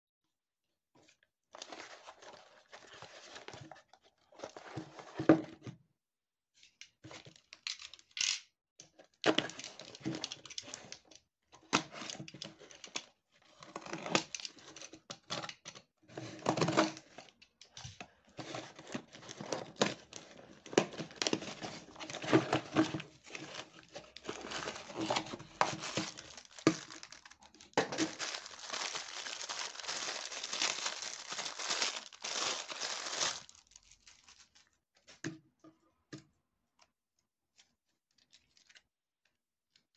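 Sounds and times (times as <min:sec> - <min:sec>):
plastic wrapping crinkling: 0:19.5 - 0:34.8.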